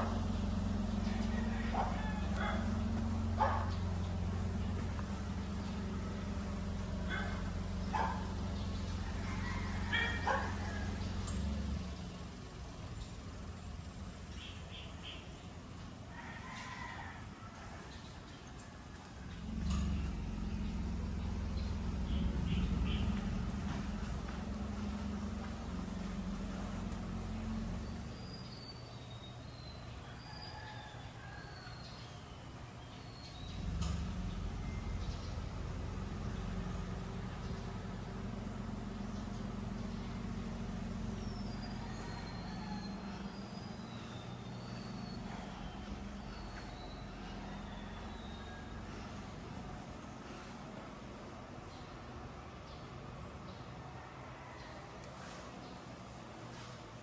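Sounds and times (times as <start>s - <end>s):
steady low hum: 0.0s - 16.2s, 17.1s - 30.1s, 32.2s - 54.0s
dog barking: 1.7s - 4.0s, 7.0s - 8.4s, 9.8s - 10.8s
bird chirps: 41.1s - 49.1s.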